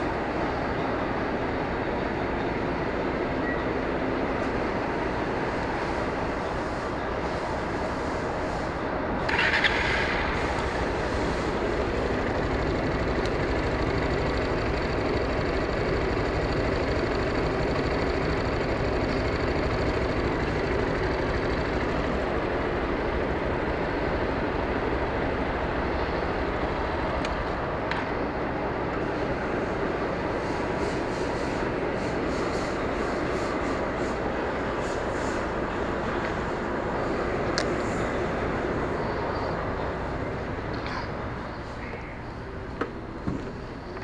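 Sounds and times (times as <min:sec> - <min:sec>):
vehicle engines idling: 0:00.0 - 0:44.0.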